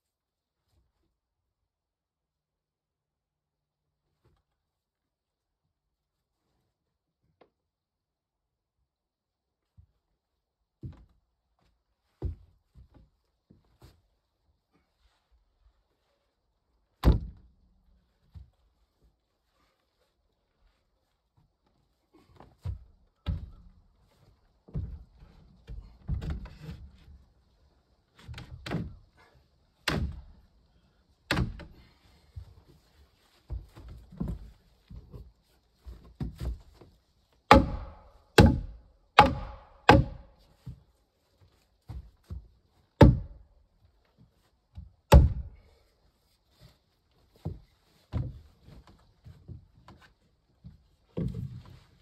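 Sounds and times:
heavy knocks and thuds: 0:37.5 - 0:40.2, 0:43.0 - 0:43.4, 0:45.1 - 0:45.6.

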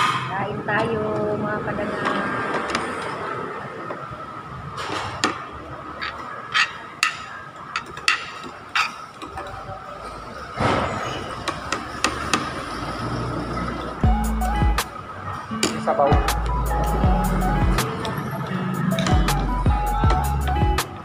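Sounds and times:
cutlery clinking on plates: 0:06.0 - 0:10.2.

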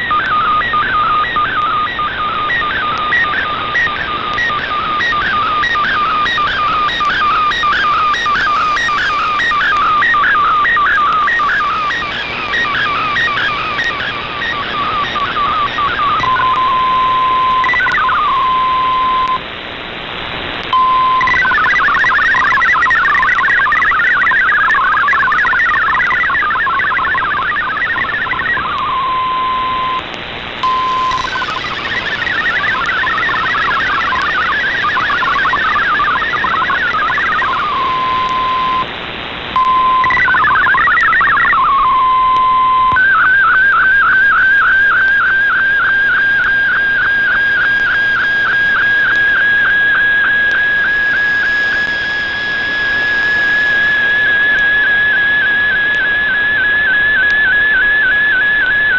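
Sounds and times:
digital data warble tones: 0:00.0 - 0:19.3, 0:20.8 - 0:30.0, 0:30.6 - 0:38.8, 0:39.6 - 0:43.4
radio band noise: 0:00.0 - 0:19.6, 0:20.2 - 0:58.9
steady single tone: 0:30.6 - 0:38.9.

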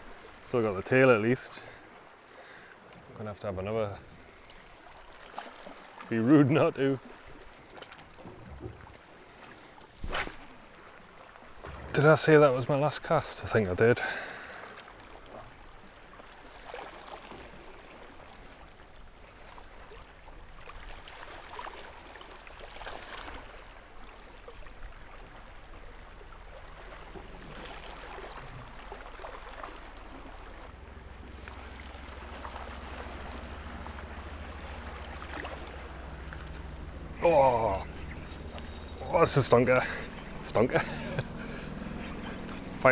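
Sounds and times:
water lapping against rocks: 0:03.9 - 0:42.9
low steady rumble: 0:10.4 - 0:16.6, 0:17.4 - 0:42.9.

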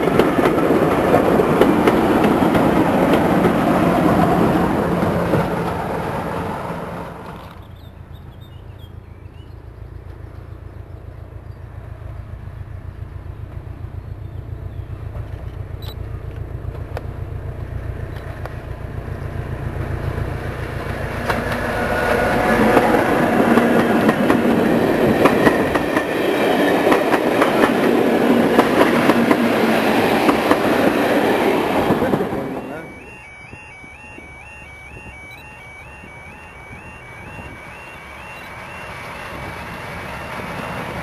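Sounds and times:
train wheels clattering over rails: 0:00.0 - 0:07.8, 0:18.1 - 0:32.8
diesel locomotive engine beat: 0:00.0 - 0:41.0.

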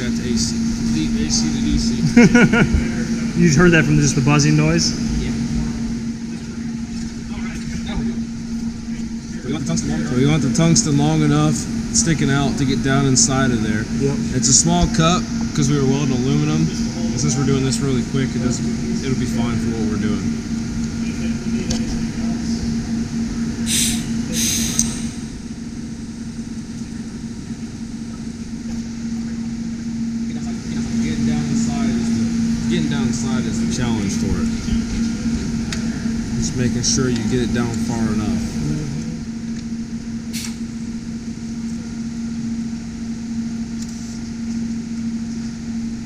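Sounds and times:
low hum: 0:00.0 - 0:46.0
welding arc hissing and humming: 0:23.6 - 0:28.8
welding arc hissing: 0:23.7 - 0:25.4.

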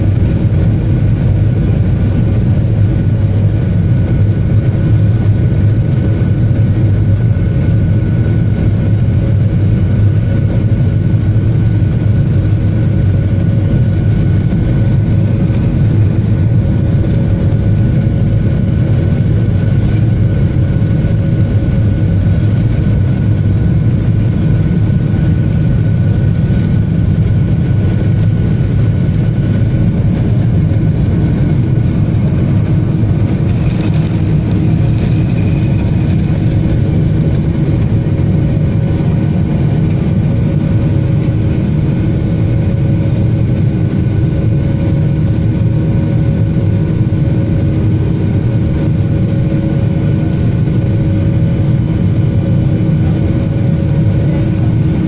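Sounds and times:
jet engines rumbling in cabin: 0:00.0 - 0:55.0.

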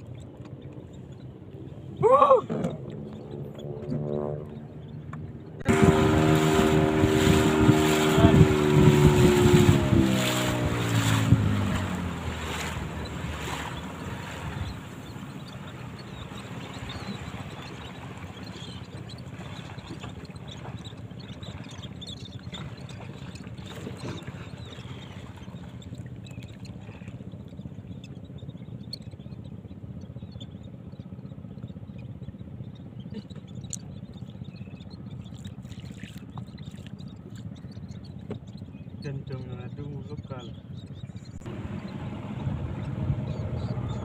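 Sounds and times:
boat engine running low: 0:00.0 - 0:44.0
faint seabird calls: 0:00.0 - 0:44.0
water noise: 0:00.0 - 0:44.0.

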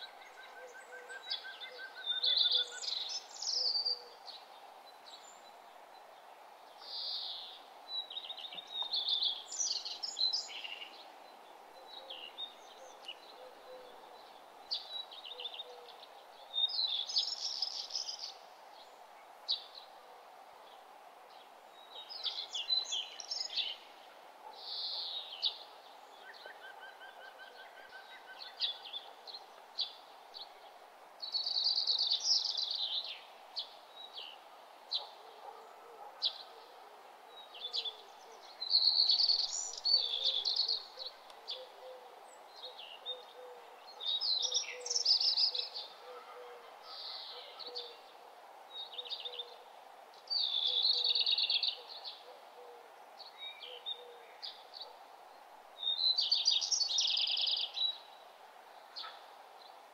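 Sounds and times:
birds chirping and singing: 0:00.0 - 0:04.2, 0:37.4 - 0:48.2, 0:50.3 - 0:52.6, 0:55.8 - 0:58.1.

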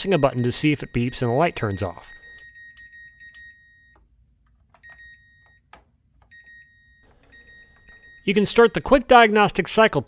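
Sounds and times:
high electronic beeps: 0:00.0 - 0:03.5.

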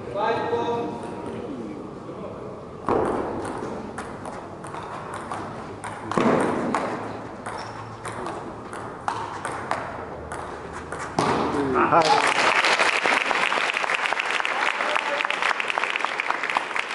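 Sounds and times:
table tennis ball clicking: 0:03.0 - 0:11.0.

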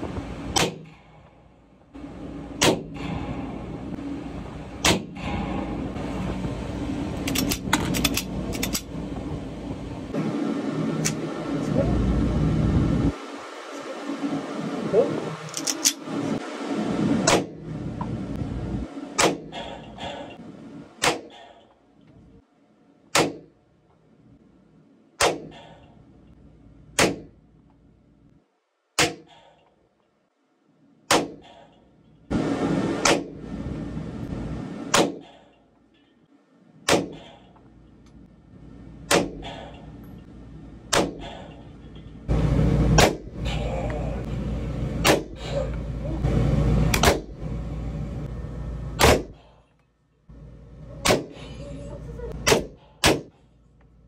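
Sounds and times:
pistol shots: 0:00.6 - 0:00.9, 0:02.6 - 0:02.9, 0:23.1 - 0:23.5, 0:25.2 - 0:25.6, 0:27.0 - 0:27.3, 0:31.1 - 0:31.5, 0:36.9 - 0:37.4, 0:40.9 - 0:41.4, 0:43.0 - 0:43.3, 0:45.0 - 0:45.4, 0:49.0 - 0:49.4.

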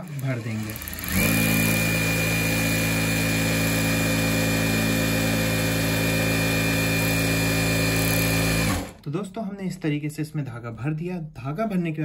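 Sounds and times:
sewing machine humming and whining: 0:00.0 - 0:09.0.

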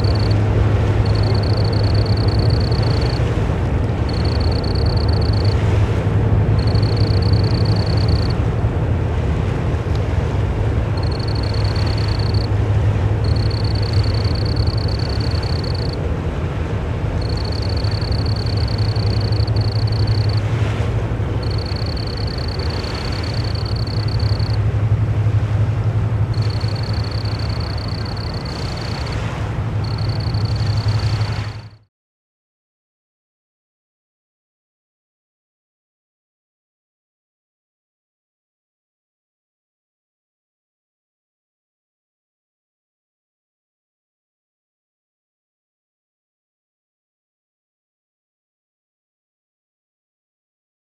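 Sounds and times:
cricket trilling: 0:00.0 - 0:03.3, 0:04.0 - 0:05.7, 0:06.5 - 0:08.5, 0:10.9 - 0:12.6, 0:13.2 - 0:16.0, 0:17.2 - 0:25.0, 0:26.2 - 0:31.7
towboat engines droning: 0:00.0 - 0:31.8.

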